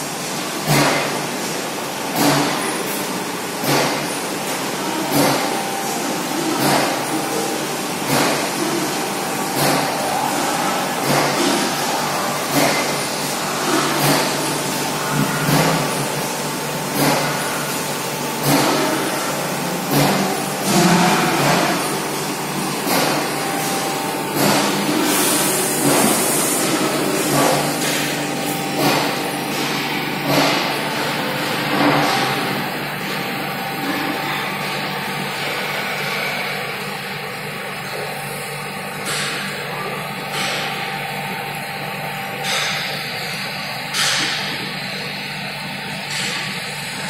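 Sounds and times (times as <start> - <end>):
machinery hum: 0.0 - 47.0
machinery pulse: 18.4 - 32.9.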